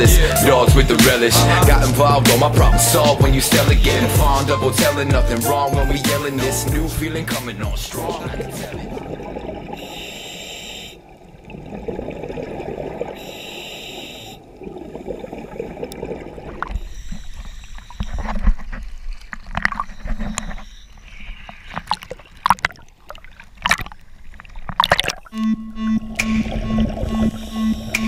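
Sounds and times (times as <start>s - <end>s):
muffled underwater rumble: 0.0s - 28.0s
sea water sloshing against camera: 6.7s - 28.0s.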